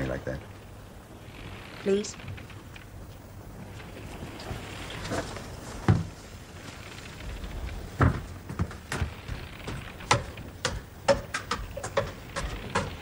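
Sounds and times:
wooden knocks and thuds: 4.5 - 6.2, 7.8 - 13.0.

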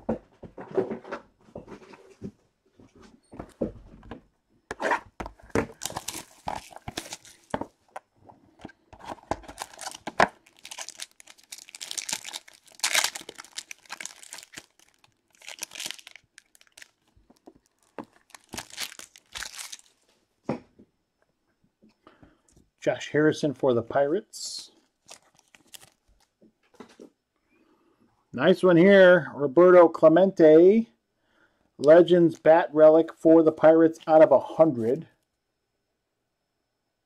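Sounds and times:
plastic wrap crackling and tearing: 5.6 - 7.6, 9.0 - 20.0, 24.9 - 26.3.

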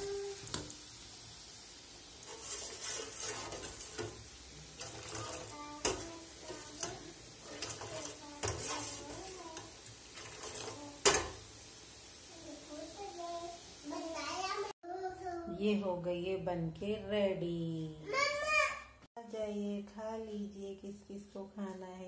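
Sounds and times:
dough sizzling in hot oil: 0.0 - 14.8
utensils scraping metal pans: 2.2 - 11.5.

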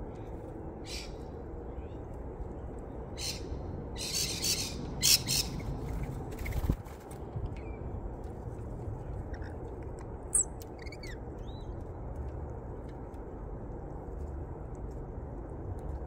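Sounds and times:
low outdoor rumble: 0.0 - 16.0
birds chirping: 3.1 - 6.6, 10.3 - 11.8.

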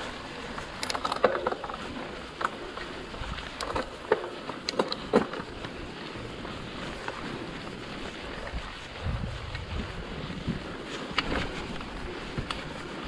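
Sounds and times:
bike clicking and rattling: 0.0 - 13.0
tyre and wind rush: 1.9 - 4.0, 5.4 - 13.0.

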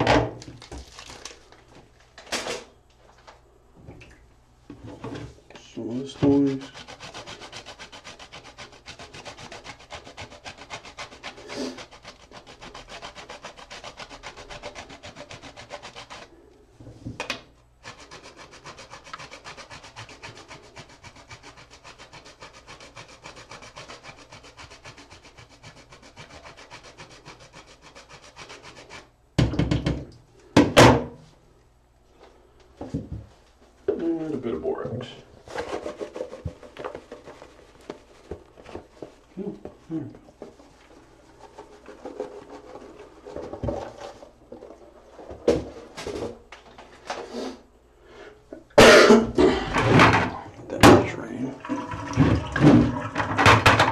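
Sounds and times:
soap grated on metal grater: 5.8 - 16.4, 17.8 - 29.1.

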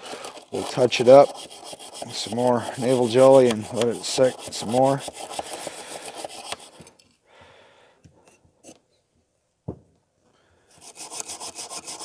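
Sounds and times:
wire brush scrubbing metal: 0.0 - 6.8, 10.8 - 12.0.

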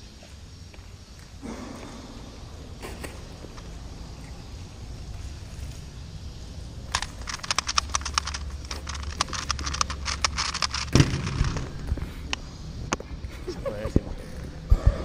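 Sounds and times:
small fast clicks of puzzle: 6.9 - 11.6
puzzle thumping on table: 7.4 - 11.8.

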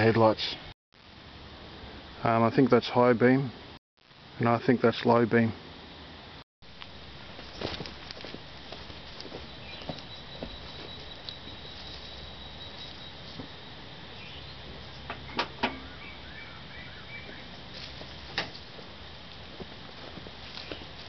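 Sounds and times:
faint high chirps: 9.4 - 15.1.

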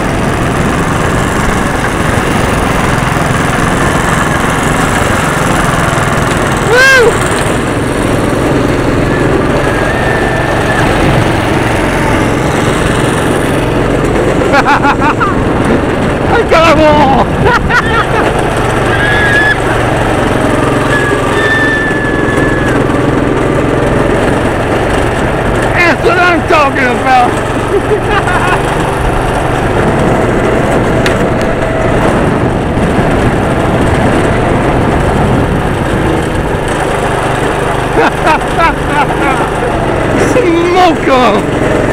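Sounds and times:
go-kart engines droning: 0.0 - 41.9.

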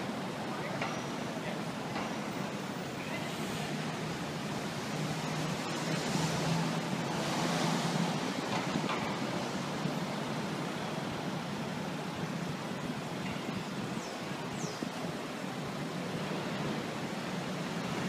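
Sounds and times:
city street traffic: 0.0 - 18.0
vehicle passing close: 4.5 - 9.9.

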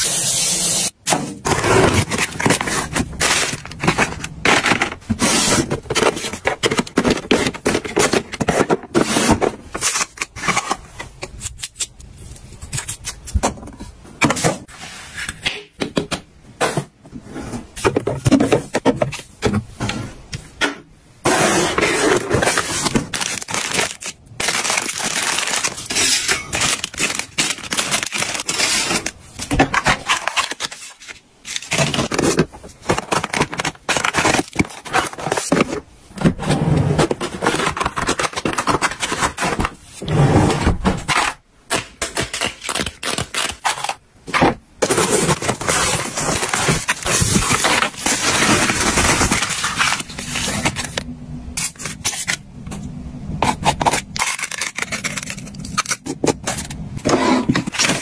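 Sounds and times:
plastic packaging crinkling: 22.3 - 29.3, 44.8 - 51.0, 53.6 - 56.9.

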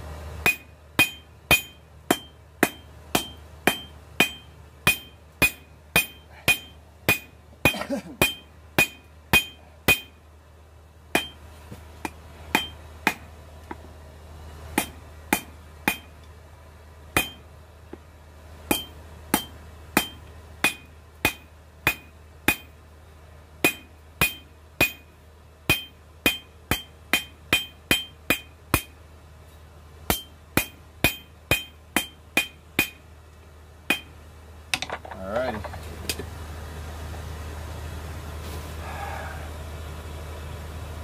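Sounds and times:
hammer striking steel on anvil: 0.4 - 10.2, 11.1 - 11.4, 12.0 - 13.3, 14.8 - 16.2, 17.2 - 17.5, 18.7 - 22.8, 23.6 - 29.0, 30.1 - 33.0, 33.9 - 34.2.

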